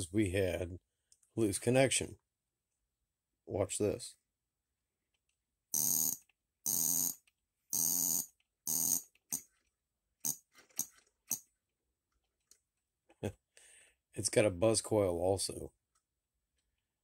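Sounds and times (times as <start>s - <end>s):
ignition buzz coil buzzing: 5.7s - 9.5s.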